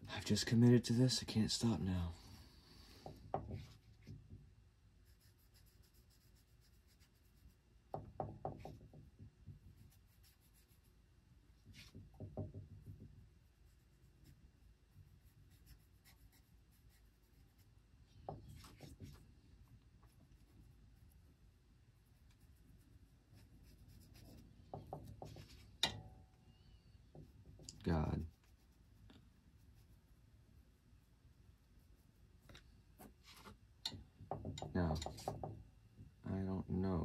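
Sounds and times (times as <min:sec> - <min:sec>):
paintbrush scratching: 0:05.0 - 0:07.7, 0:08.4 - 0:11.0, 0:11.6 - 0:25.8, 0:27.1 - 0:33.6.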